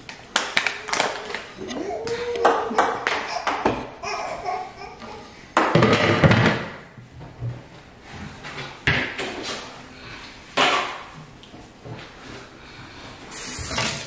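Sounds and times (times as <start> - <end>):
kitchen clatter: 13.4 - 14.0.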